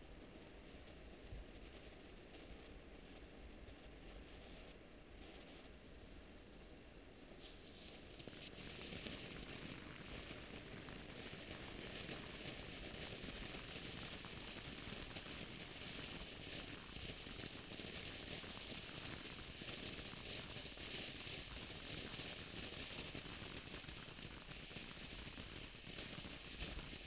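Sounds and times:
firework hissing and crackling: 7.4 - 27.0.

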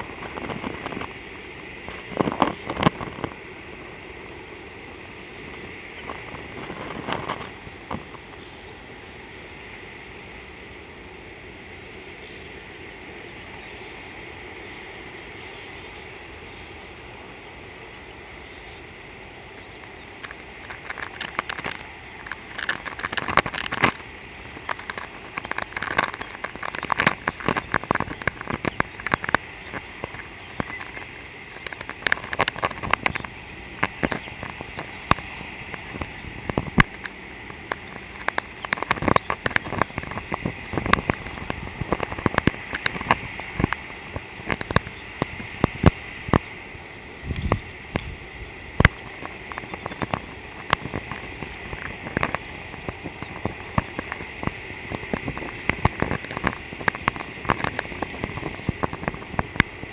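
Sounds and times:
crackling clicks and taps: 0.0 - 4.0, 5.4 - 8.5, 19.6 - 46.6, 47.3 - 59.9.

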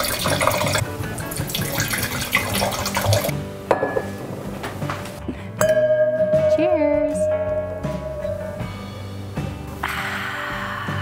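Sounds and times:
wine pouring into glass: 0.0 - 3.3.

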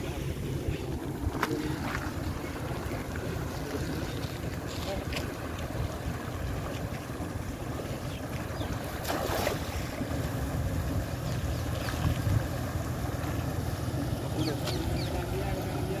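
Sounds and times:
wind rumbling on microphone: 0.0 - 16.0
water rushing out of a culvert: 1.0 - 16.0
cast net splashing on water: 8.8 - 9.9.

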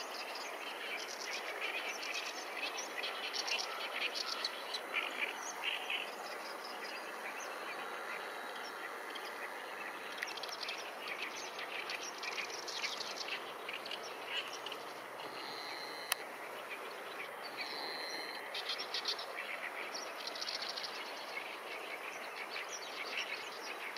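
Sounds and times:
small birds chirping: 0.0 - 23.9
steady background hiss: 0.0 - 23.9.

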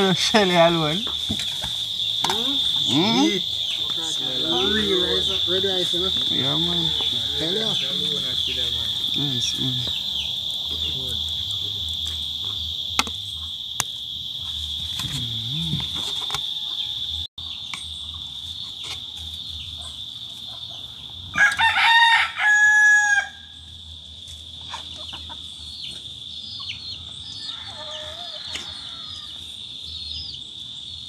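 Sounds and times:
rooster crowing: 2.6 - 11.3, 16.4 - 17.3, 21.3 - 23.7, 27.2 - 29.5.

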